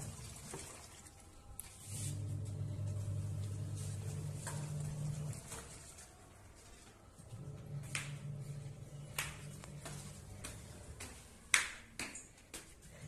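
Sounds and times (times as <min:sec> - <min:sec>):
footsteps on stone stairs: 0:09.0 - 0:13.0.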